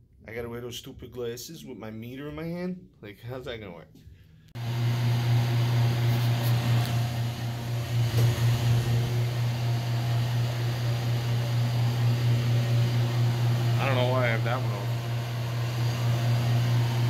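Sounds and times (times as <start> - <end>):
cooling fan rushing: 4.6 - 17.0.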